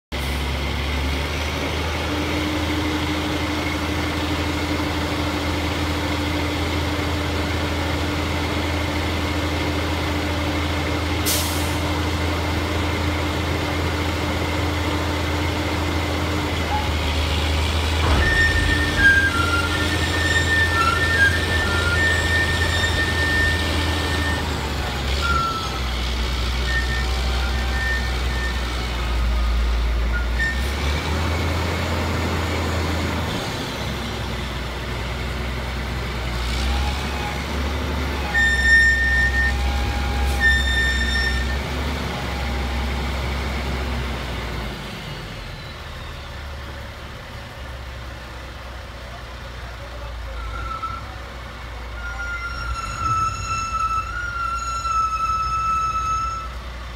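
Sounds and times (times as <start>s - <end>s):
truck diesel engine running: 0.1s - 52.4s
dumpster being set down: 17.9s - 19.4s.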